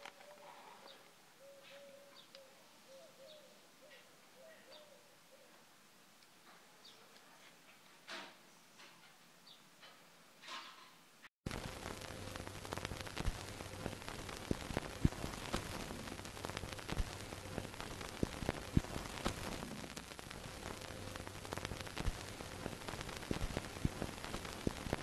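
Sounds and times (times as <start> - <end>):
static hiss: 11.5 - 25.0
static pops and clicks: 11.5 - 25.0.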